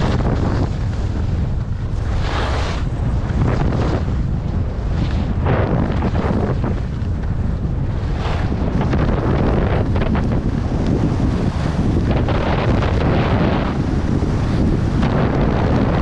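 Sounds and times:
skis scraping over snow: 0.0s - 16.0s
wind buffeting microphone: 0.0s - 16.0s.

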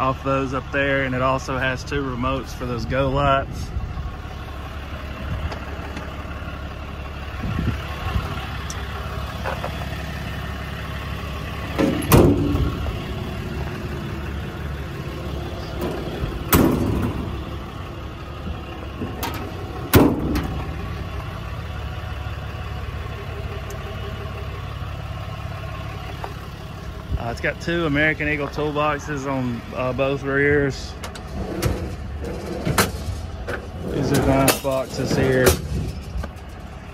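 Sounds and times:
diesel engine idling: 0.0s - 36.9s
metal clunks of truck doors: 11.7s - 13.1s, 15.7s - 17.6s, 18.4s - 21.0s, 31.0s - 36.6s.

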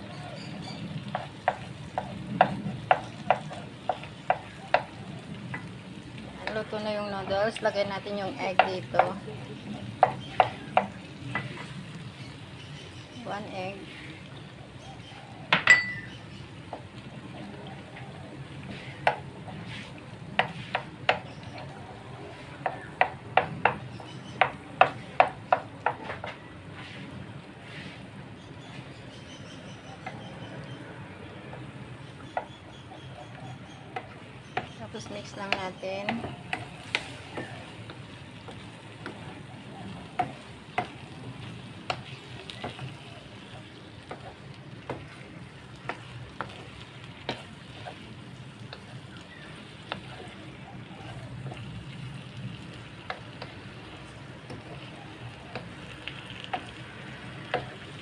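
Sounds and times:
noodles sizzling in a pan: 0.0s - 26.3s, 29.7s - 58.0s
spatula scraping a pan: 18.6s - 21.0s, 35.0s - 39.5s, 44.1s - 52.0s.

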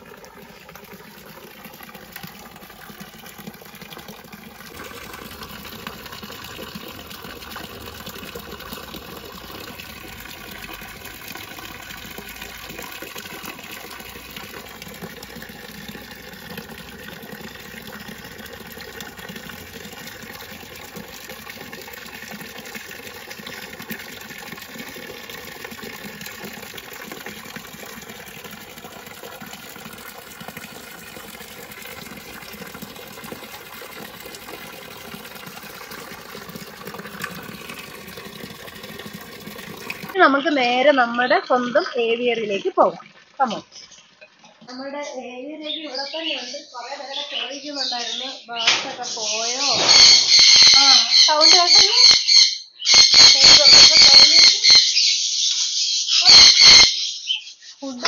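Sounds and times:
water rushing: 0.0s - 44.9s.

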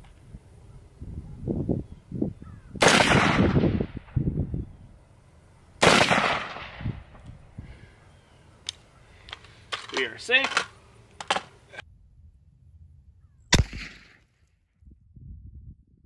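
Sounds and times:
rifle shots with echo: 2.8s - 4.1s, 5.8s - 6.9s, 13.5s - 14.2s.

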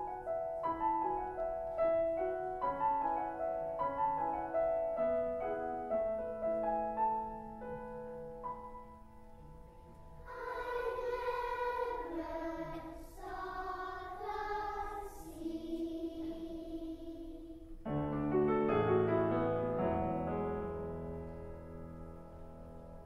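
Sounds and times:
piano chords: 0.0s - 23.0s
girls choir singing: 10.2s - 17.9s.

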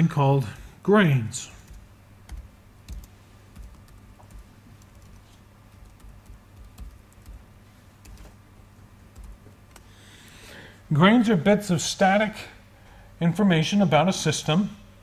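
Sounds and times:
low steady hum: 0.0s - 15.0s
keyboard keystrokes: 5.8s - 7.4s.

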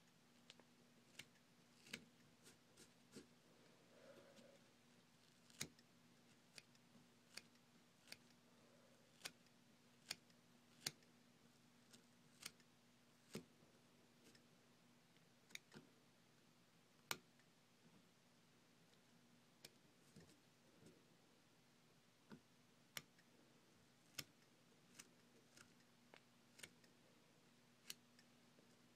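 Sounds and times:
scissors snipping: 1.1s - 3.3s, 5.3s - 8.4s.

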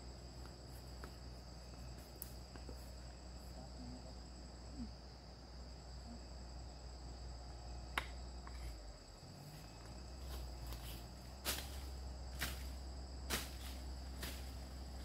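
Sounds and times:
insects chirring: 0.0s - 15.0s.

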